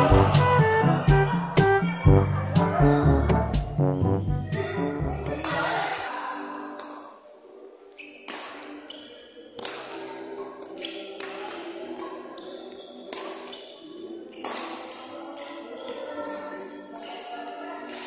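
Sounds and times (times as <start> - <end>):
quiet background music: 0.0 - 18.0.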